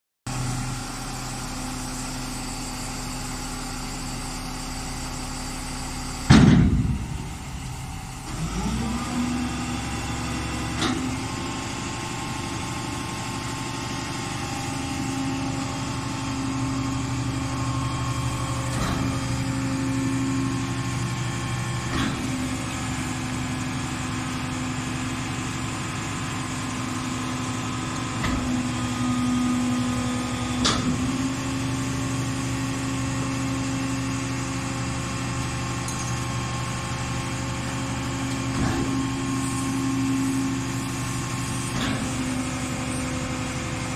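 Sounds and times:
garbage truck engine hum: 0.3s - 43.9s
loud clunk: 6.2s - 8.4s, 10.7s - 11.2s, 21.9s - 22.4s, 30.6s - 31.2s, 38.5s - 39.2s.

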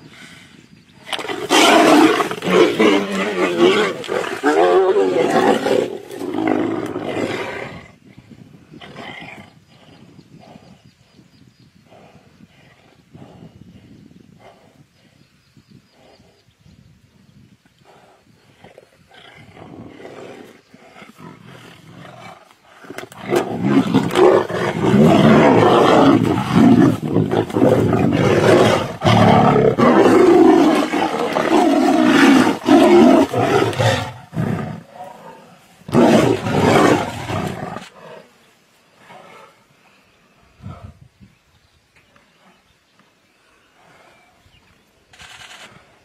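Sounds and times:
tigers roaring: 1.0s - 7.8s, 19.2s - 38.4s.

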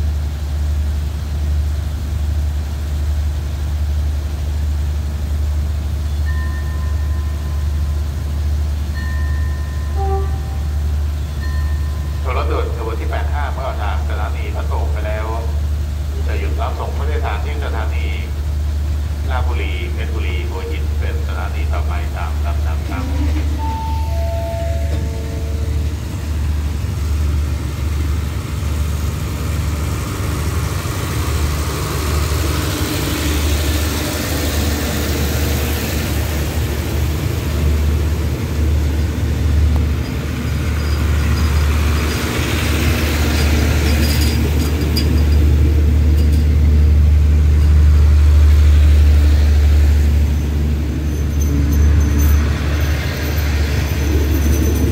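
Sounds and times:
train coaches rumbling past: 0.0s - 54.9s
high wheel squeaks: 39.8s - 45.6s, 50.2s - 54.9s.

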